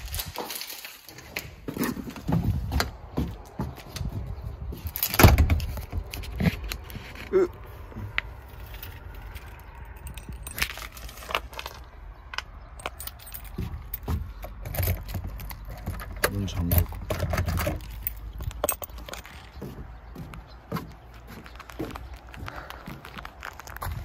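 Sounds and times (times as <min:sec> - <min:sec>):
keys jangling: 0:08.5 - 0:11.8, 0:12.7 - 0:19.6.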